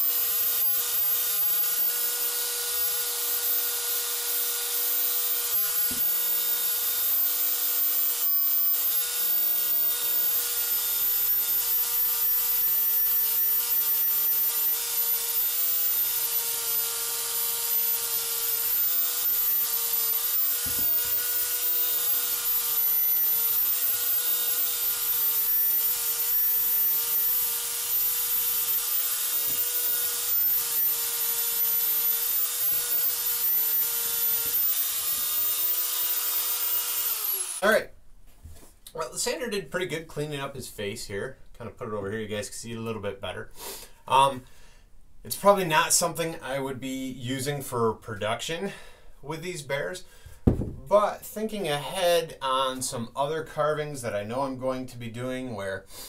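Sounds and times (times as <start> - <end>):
electric motor whine: 0.0 - 37.6.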